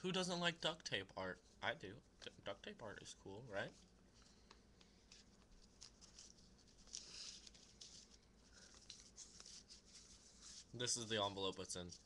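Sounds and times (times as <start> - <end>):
paper being handled: 3.6 - 12.0.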